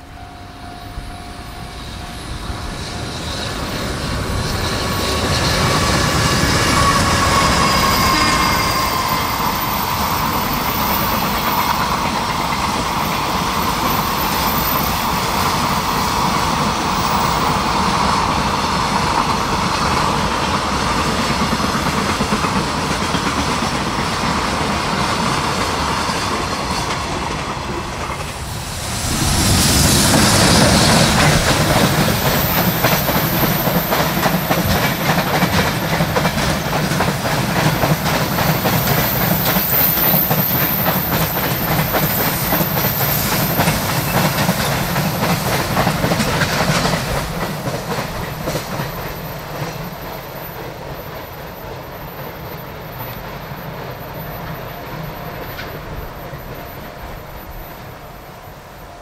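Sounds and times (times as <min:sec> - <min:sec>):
train horn: 0:00.0 - 0:03.8, 0:05.0 - 0:09.8, 0:54.6 - 0:59.0
electric locomotive approaching: 0:00.0 - 0:59.0
train wheels rumbling on rail: 0:00.0 - 0:59.0.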